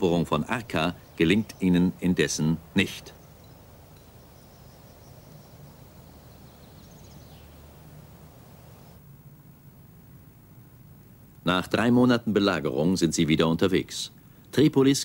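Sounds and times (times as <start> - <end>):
faint outdoor ambience: 0.0 - 15.0
steady low hum: 0.0 - 15.0
faint high chirps: 2.8 - 9.0.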